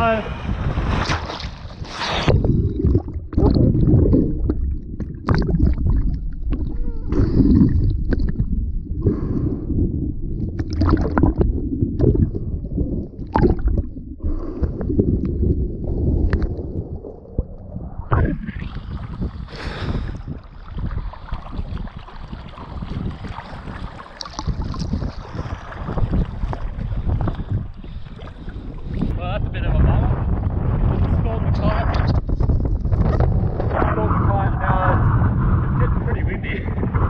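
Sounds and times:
muffled water sloshing and gurgling: 0.0 - 37.0
water splashes and knocks: 2.4 - 6.8, 10.6 - 12.4, 20.4 - 29.1.

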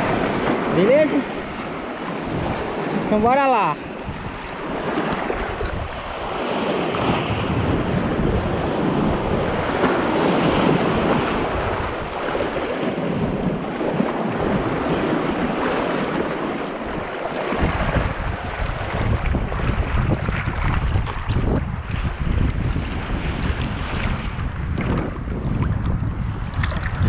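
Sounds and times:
surf churning over rocks: 0.0 - 25.4
water splashing: 0.0 - 27.0
wind buffeting microphone: 0.0 - 27.0.

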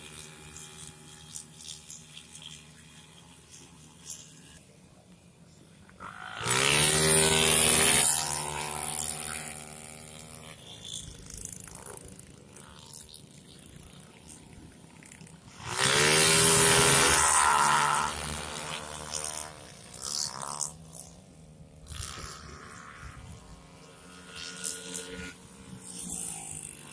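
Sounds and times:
distant motorcycle engines: 0.0 - 26.9
racing motorcycles passing: 5.8 - 26.9.

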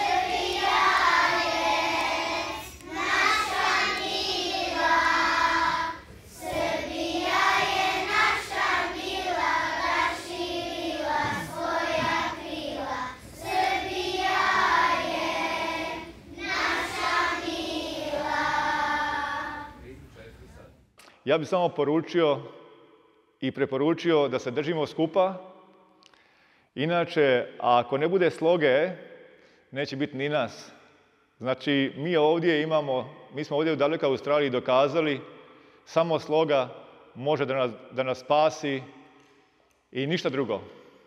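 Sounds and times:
children singing together: 0.0 - 19.8.

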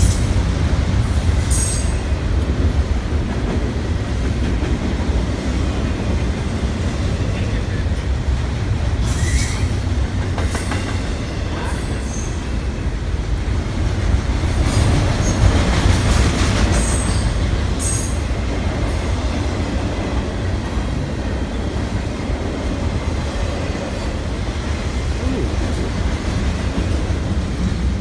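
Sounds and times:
freight train rolling past: 0.0 - 28.0
train wheels squealing: 1.4 - 2.1, 9.0 - 12.6, 16.7 - 18.3.

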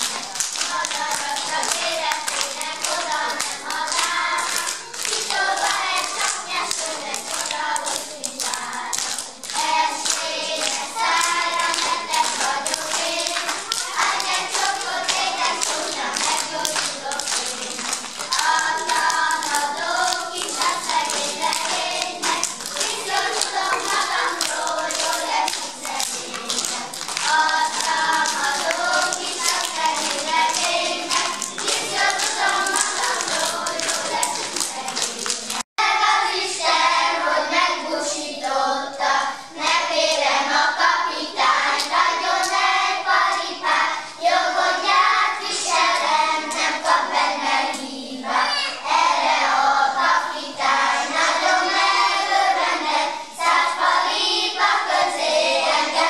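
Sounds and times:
sharp hand claps: 0.0 - 35.7
children singing: 0.0 - 56.0.

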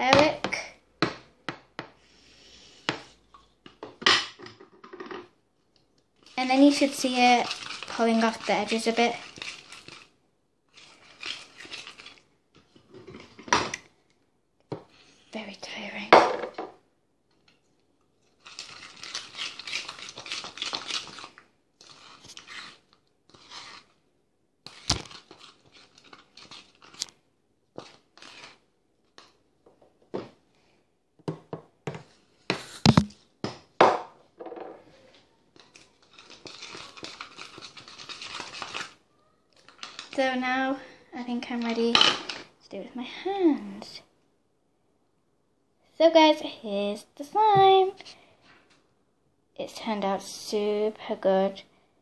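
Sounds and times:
slime being stirred: 5.9 - 13.3, 18.2 - 24.0, 24.6 - 29.4, 35.5 - 41.9.

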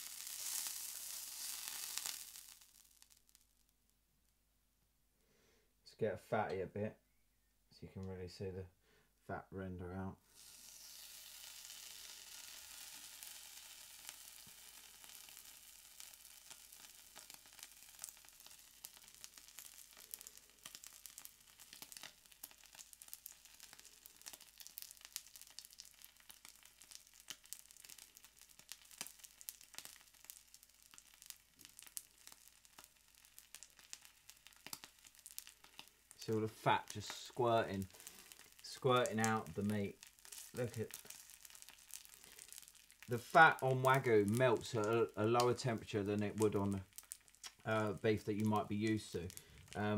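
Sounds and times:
meat sizzling on griddle: 0.0 - 3.5, 10.3 - 48.2, 48.9 - 49.9
fat spitting and crackling: 10.3 - 49.9.

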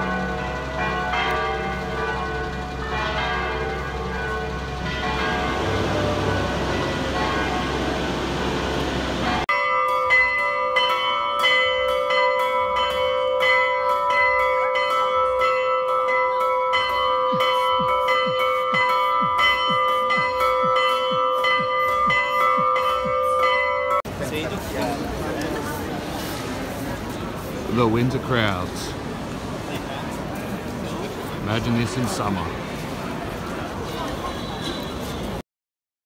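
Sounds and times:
church bells pealing: 0.0 - 26.0, 27.2 - 29.1
street noise: 0.0 - 35.4.

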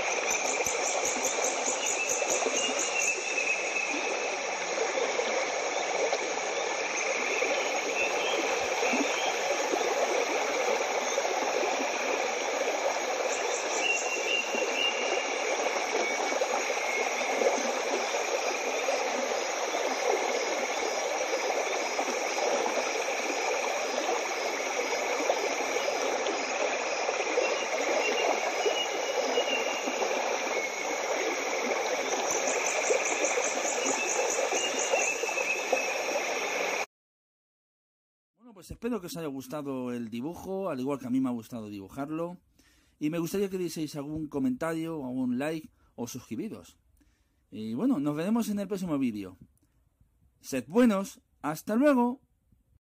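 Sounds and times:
faint high rapid chirping: 0.0 - 36.8
flowing water rushing: 0.0 - 36.9.

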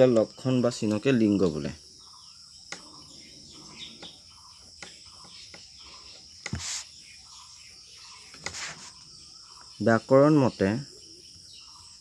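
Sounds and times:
crickets chirping: 0.0 - 12.0
short hissy sounds: 6.5 - 6.9.

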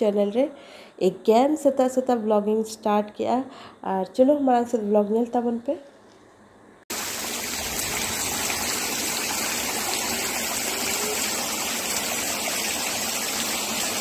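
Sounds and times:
heavy rain on a metal roof: 6.9 - 14.0.

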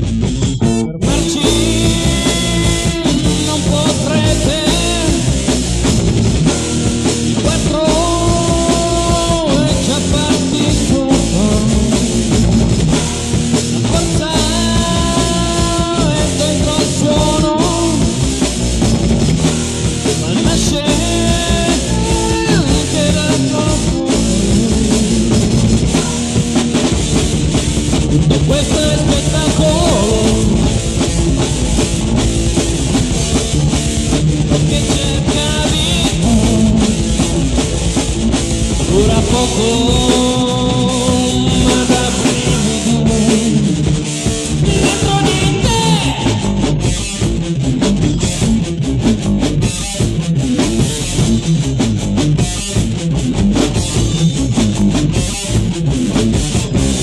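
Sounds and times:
heavy metal band playing: 0.0 - 57.0.

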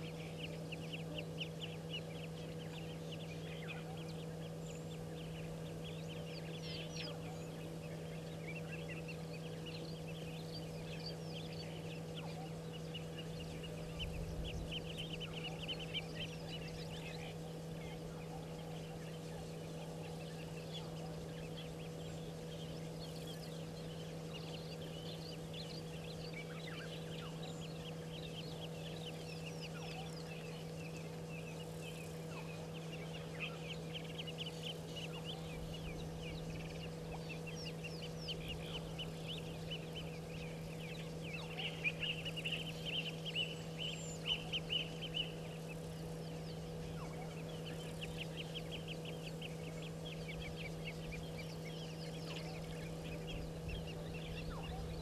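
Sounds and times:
birds chirping and chattering: 0.0 - 55.0
low electrical hum: 0.0 - 55.0.

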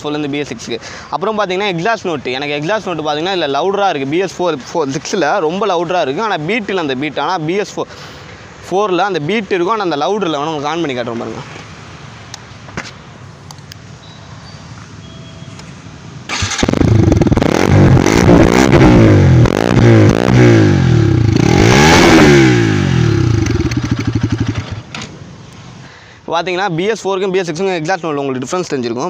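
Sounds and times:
motorcycle engine revving: 16.3 - 24.9.

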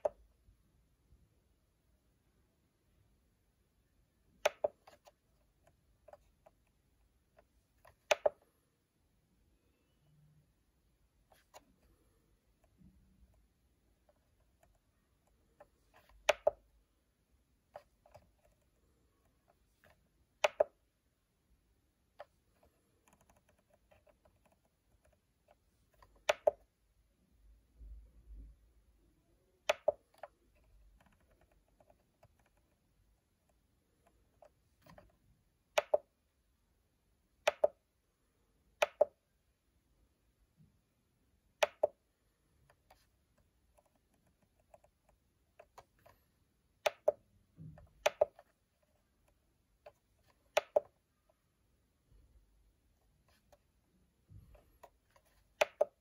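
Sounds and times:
controller buttons clicking: 4.3 - 6.5, 7.8 - 8.4, 15.6 - 16.6, 20.4 - 20.8, 26.0 - 26.7, 29.6 - 30.4, 37.5 - 37.8, 38.8 - 39.1, 41.6 - 42.0, 46.8 - 47.2, 48.0 - 48.5, 49.9 - 50.9.

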